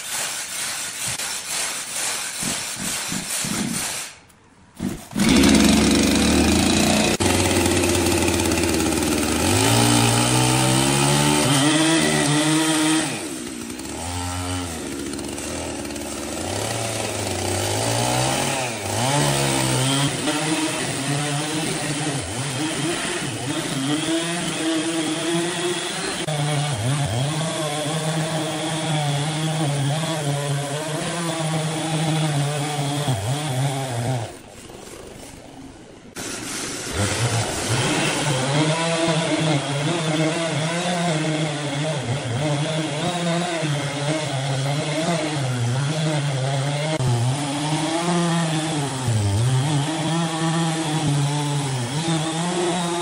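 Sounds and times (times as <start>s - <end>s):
chainsaw cutting log: 0.0s - 35.6s, 36.2s - 53.0s.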